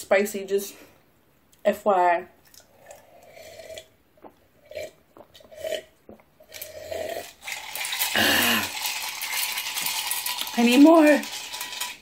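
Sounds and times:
person gulping a drink: 2.4s - 9.0s.

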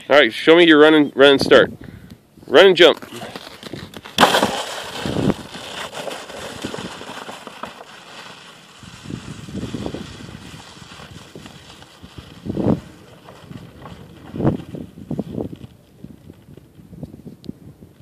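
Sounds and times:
sled slapping onto snow: 2.8s - 15.6s
sled scraping across snow: 2.9s - 15.8s.

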